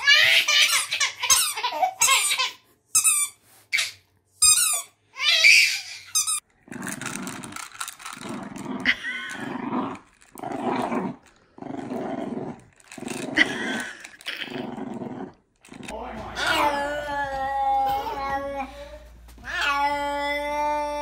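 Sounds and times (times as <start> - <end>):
baby laughing squeal: 5.2 - 6.3.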